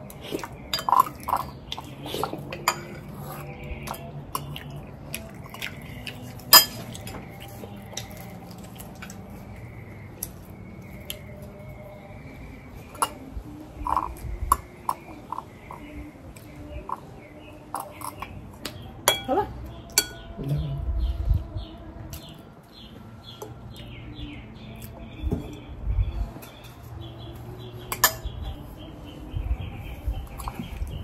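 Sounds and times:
dishes and utensils clinking: 0.3 - 4.7, 6.4 - 8.2, 12.9 - 15.8, 19.0 - 20.4, 27.9 - 28.4.

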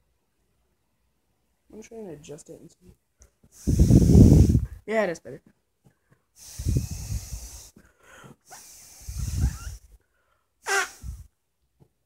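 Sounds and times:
breath blown through marker: 3.5 - 4.8, 6.4 - 10.0, 10.6 - 11.3
short voiced sound: 10.6 - 11.2.

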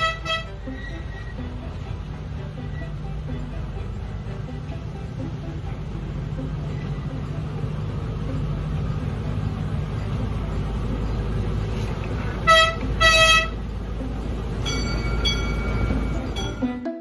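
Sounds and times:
miniature train horn toots: 0.0 - 1.4, 12.4 - 13.6
train rumbling: 0.0 - 16.9.

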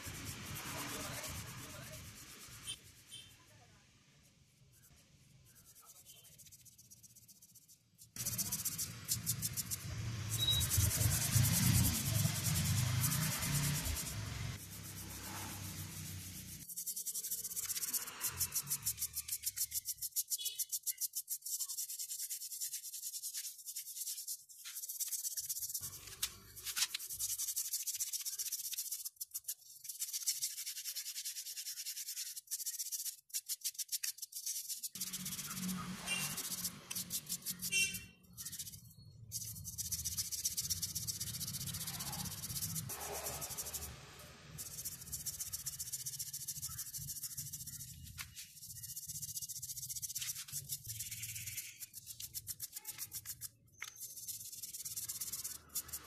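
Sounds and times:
toothbrush scrubbing a brush: 0.0 - 3.4, 4.6 - 56.0.

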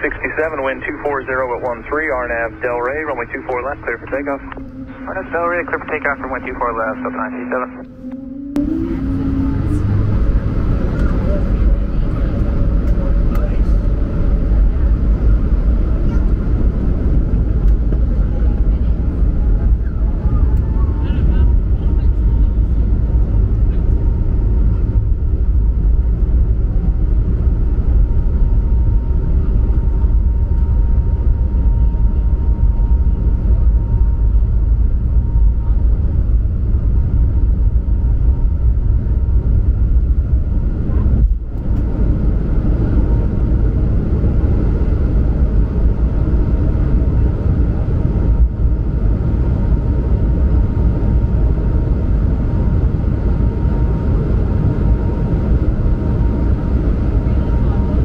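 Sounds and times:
faint high whine: 0.0 - 16.3
jet engine rumble in cabin: 0.0 - 58.0.

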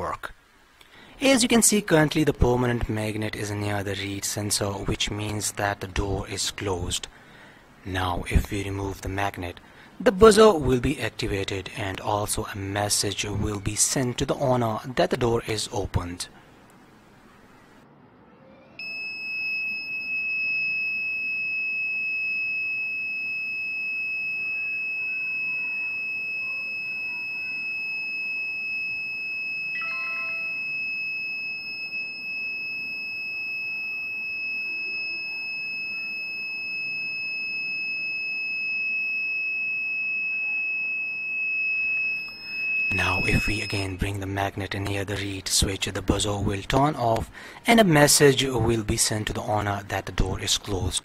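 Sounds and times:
high-pitched buzzer tone: 18.6 - 44.0
short chime: 29.7 - 30.8, 42.2 - 44.0.

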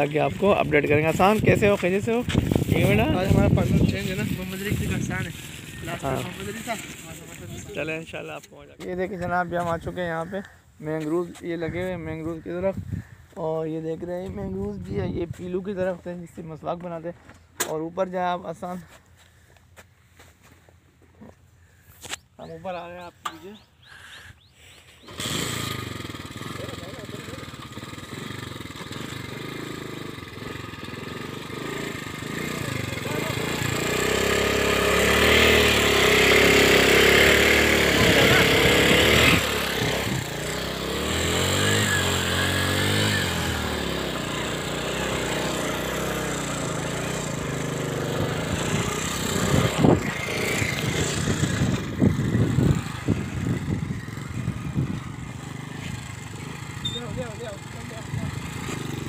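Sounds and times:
motorcycle engine revving: 0.0 - 8.0, 25.0 - 59.0.

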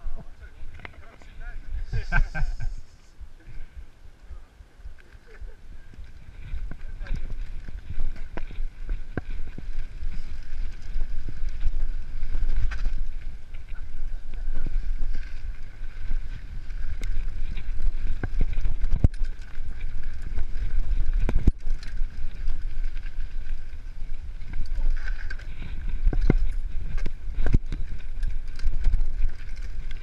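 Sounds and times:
wind rumble on microphone: 0.0 - 30.0
tyres on dirt: 4.2 - 30.0
bike knocks and rattles: 14.2 - 30.0.

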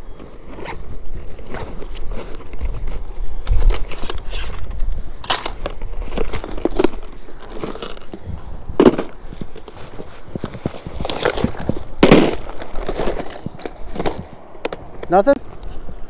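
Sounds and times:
clicks of gear being handled: 0.2 - 8.2.

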